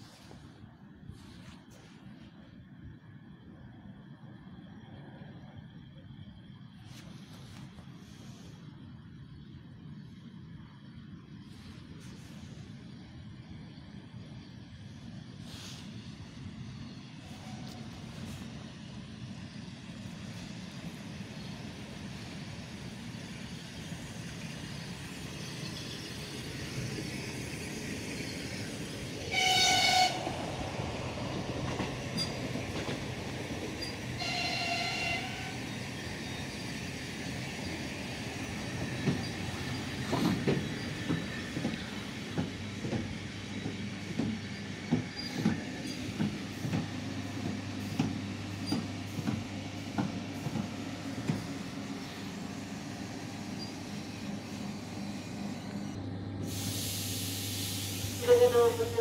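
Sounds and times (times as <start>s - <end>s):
train rumble: 0.0s - 59.0s
train horn blasts: 29.2s - 30.3s, 34.2s - 35.6s, 58.2s - 59.0s.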